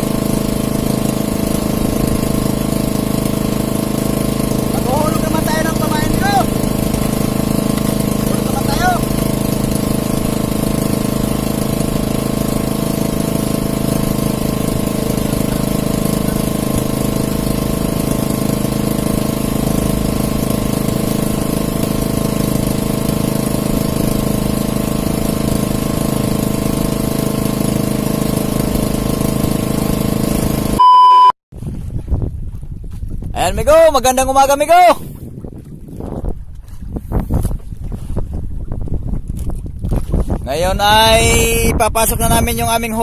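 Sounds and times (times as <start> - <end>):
boat engine running: 0.0 - 43.0
short loud beep: 30.8 - 31.4.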